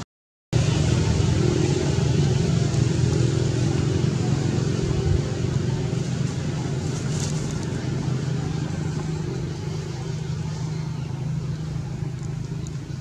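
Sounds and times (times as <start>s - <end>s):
low engine hum: 0.6s - 13.0s.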